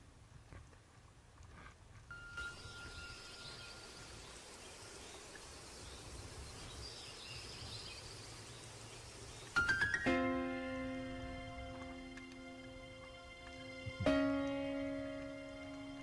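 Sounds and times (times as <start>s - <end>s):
faint hiss: 1.6s - 16.0s
thin steady tone: 2.1s - 9.8s.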